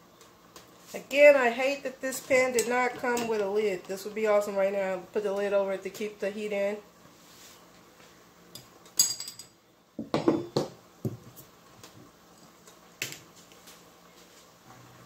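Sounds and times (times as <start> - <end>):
cookware knocks: 10.0 - 10.8.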